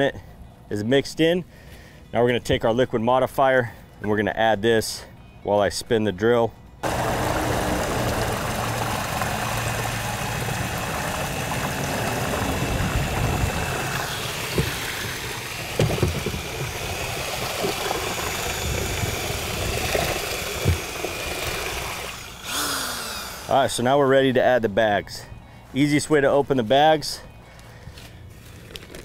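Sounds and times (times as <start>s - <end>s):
paddle knocking bucket: 6.8s - 22.0s
electric drill mixing liquid: 6.8s - 23.8s.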